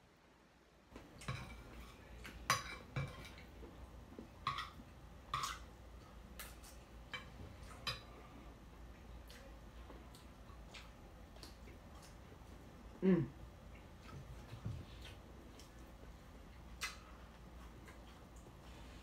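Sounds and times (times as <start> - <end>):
person chewing: 3.3 - 13.0, 13.6 - 19.0.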